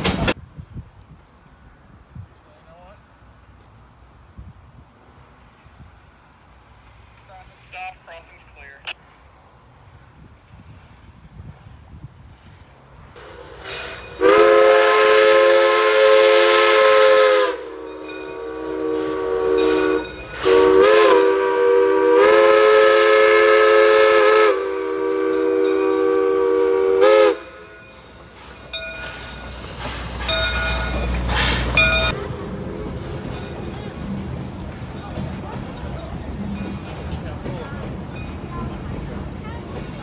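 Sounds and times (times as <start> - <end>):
locomotive rumble: 0.0 - 40.0
steam locomotive whistle blowing: 13.2 - 28.0.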